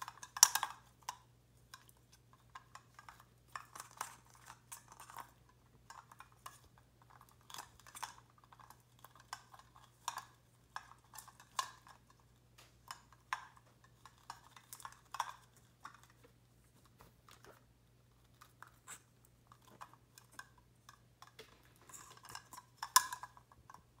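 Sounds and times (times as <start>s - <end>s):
faint low hum: 0.0s - 24.0s.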